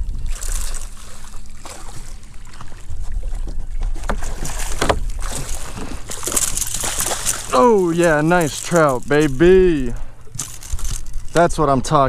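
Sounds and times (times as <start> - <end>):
wind rumbling on microphone: 0.0 - 12.0
knocks of gear on boat: 3.5 - 11.5
fish splashing at surface: 4.2 - 9.7.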